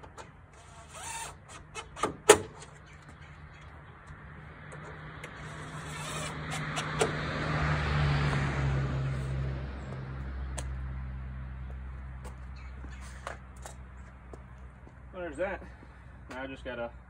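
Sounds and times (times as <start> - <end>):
vehicle driving past: 4.2 - 13.2.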